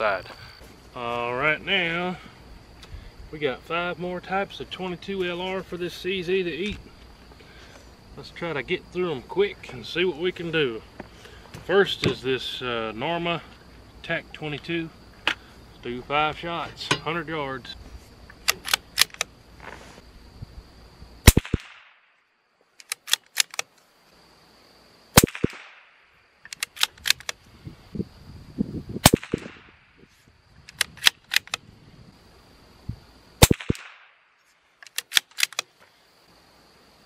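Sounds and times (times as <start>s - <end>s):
rifle bolt clicking: 18.4s - 19.3s, 22.8s - 23.7s, 26.5s - 27.4s, 30.7s - 31.6s, 34.8s - 35.7s
rifle shots cracking: 21.2s - 22.0s, 25.2s - 26.0s, 29.0s - 29.8s, 33.4s - 34.2s.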